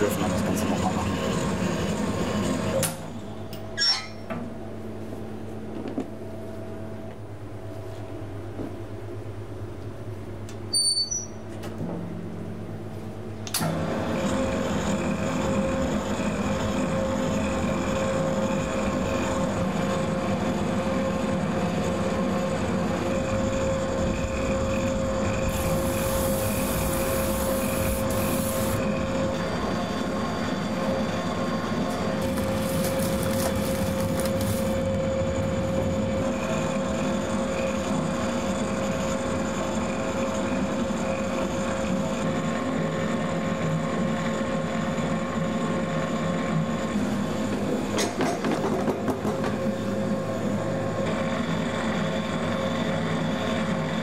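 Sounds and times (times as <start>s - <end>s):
pasta machine humming: 0.0s - 3.8s, 12.4s - 54.0s.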